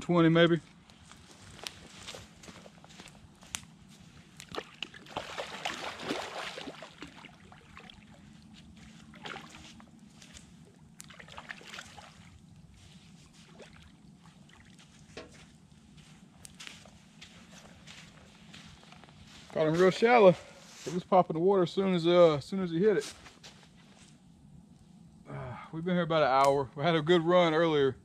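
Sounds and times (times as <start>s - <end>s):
footsteps on shore: 0.7s - 21.2s
water sloshing and splashing: 4.3s - 15.7s.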